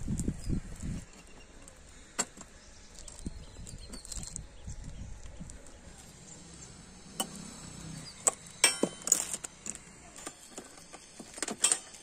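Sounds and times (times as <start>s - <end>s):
metallic clinks of tools and bolts: 8.2s - 10.8s.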